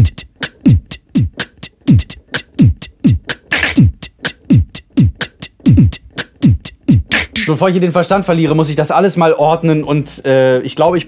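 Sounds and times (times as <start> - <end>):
beatboxed hi-hat ticks: 0.0 - 7.5
beatboxed hissy snare: 0.0 - 7.5
beatboxed kick drum: 0.0 - 7.5.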